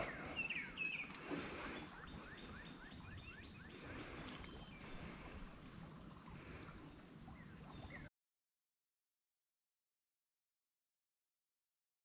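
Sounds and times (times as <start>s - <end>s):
birds chirping: 0.0s - 8.1s.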